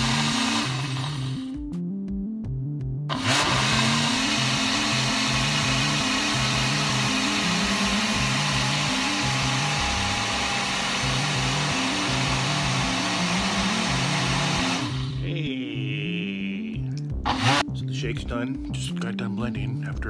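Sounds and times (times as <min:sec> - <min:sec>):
blender motor running: 0:00.0 - 0:01.6, 0:03.1 - 0:15.2, 0:17.3 - 0:17.7
background music with bass line: 0:00.0 - 0:20.0.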